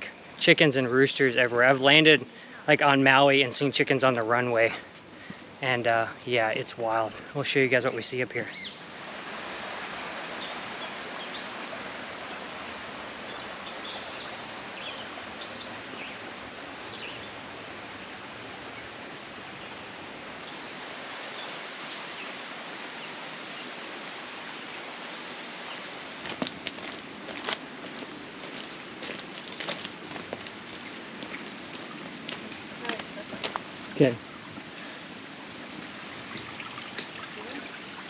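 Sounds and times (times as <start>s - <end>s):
rainforest ambience hiss: 0.0s - 38.0s
faint bird chirps: 8.4s - 8.9s.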